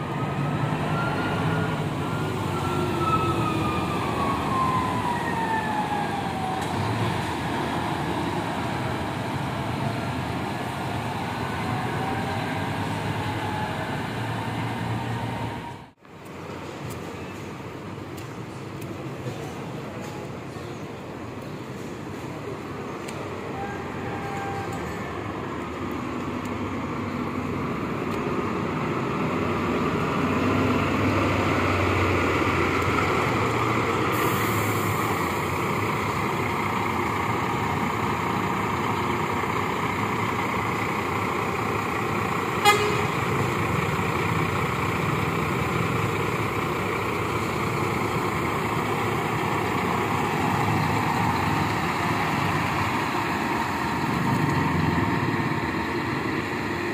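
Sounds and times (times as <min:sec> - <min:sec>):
short horn toot: 0:42.6 - 0:43.1.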